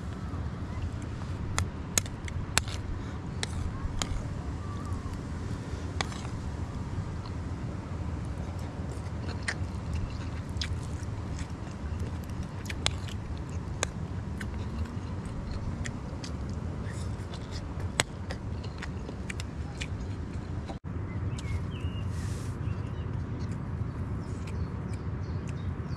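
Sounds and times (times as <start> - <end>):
person chewing: 1.0 - 7.4, 8.2 - 20.8.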